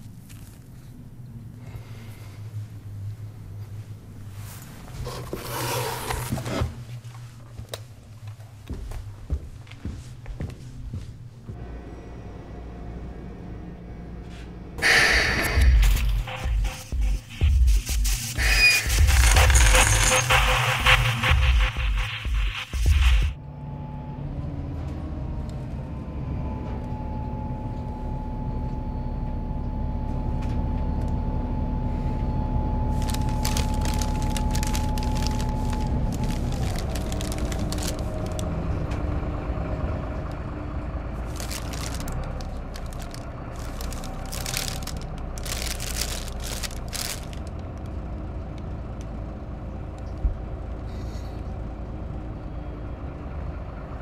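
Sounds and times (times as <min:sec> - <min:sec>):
transit vehicle cabin drone: 0:00.0 - 0:05.4, 0:06.1 - 0:54.0.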